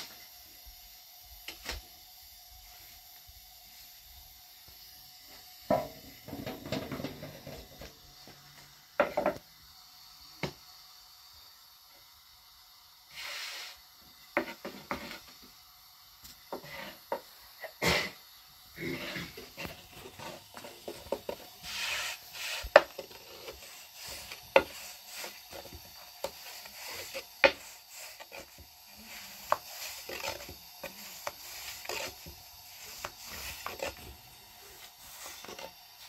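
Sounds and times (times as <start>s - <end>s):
rolling pin rubbing dough: 16.5s - 17.2s, 18.8s - 36.0s.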